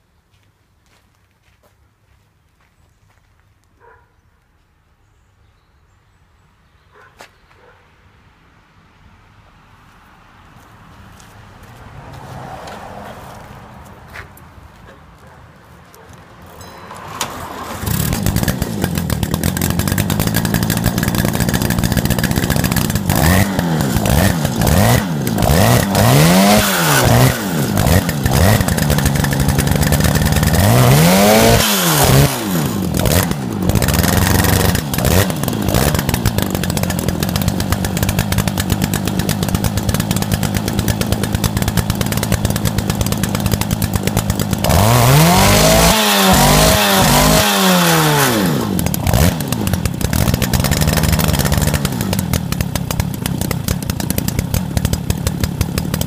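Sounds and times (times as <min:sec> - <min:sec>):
moped engine revving and idling: 0:16.8 - 0:56.0.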